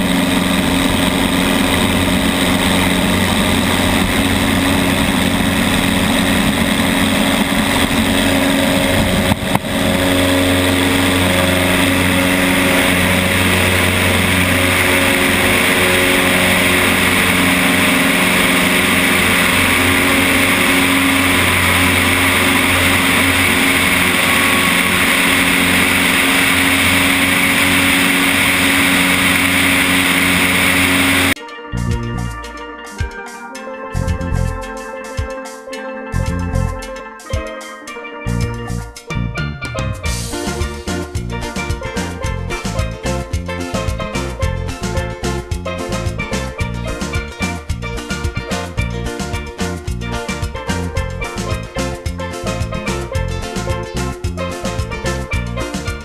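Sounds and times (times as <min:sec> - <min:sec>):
aircraft engine and propeller drone: 0:00.0 - 0:31.4, 0:39.7 - 0:56.0
wind rush on camera: 0:00.0 - 0:31.4.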